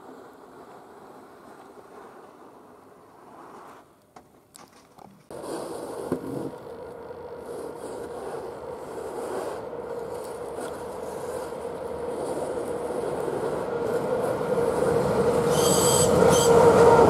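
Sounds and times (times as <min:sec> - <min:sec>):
train rumbling on rails: 0:05.3 - 0:17.0.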